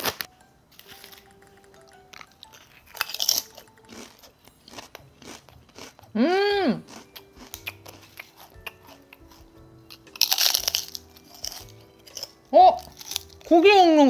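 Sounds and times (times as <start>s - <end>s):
crunching potato chips: 2.3s - 13.5s.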